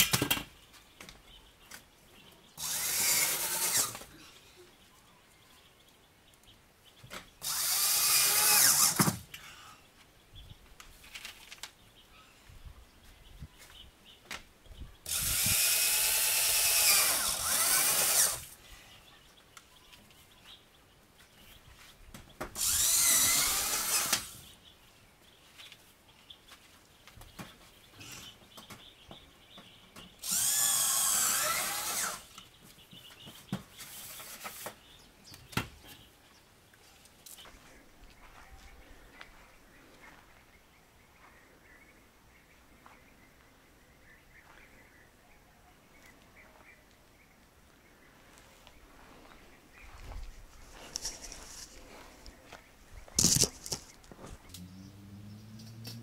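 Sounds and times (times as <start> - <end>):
electric drill running: 2.6 - 4.1, 7.4 - 9.2, 15.1 - 18.5, 22.6 - 24.4, 30.2 - 32.3.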